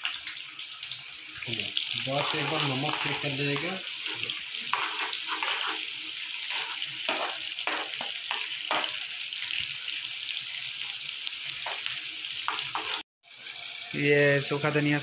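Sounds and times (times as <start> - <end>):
onions sizzling in hot oil: 0.0 - 15.0
spatula scraping frying pan: 2.0 - 9.1, 11.6 - 13.0.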